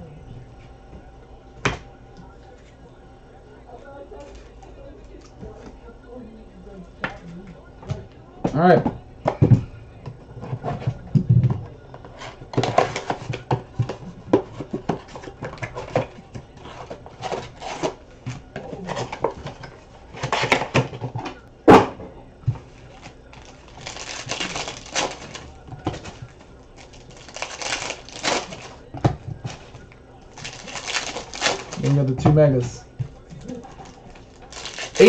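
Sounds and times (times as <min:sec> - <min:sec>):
packaging crinkling and tearing: 0:22.9 - 0:32.2, 0:33.6 - 0:35.0.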